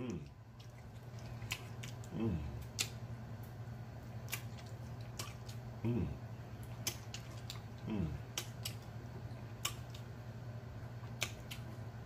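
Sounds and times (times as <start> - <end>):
person humming: 0.0 - 0.3, 2.1 - 2.6, 5.8 - 6.2, 7.8 - 8.3
low steady hum: 0.0 - 12.0
wet mouth clicks and lip smacks: 1.4 - 3.0, 4.2 - 5.6, 6.6 - 7.7, 8.3 - 8.9, 9.6 - 10.0, 11.0 - 11.7.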